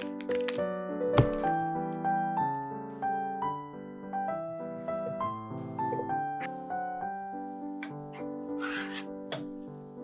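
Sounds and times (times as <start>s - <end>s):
background piano music: 0.0s - 10.0s.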